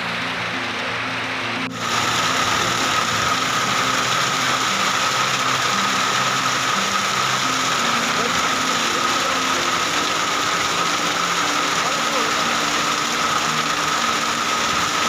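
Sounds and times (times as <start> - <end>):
hail and heavy rain clattering: 0.0 - 15.0
low background music: 0.0 - 15.0.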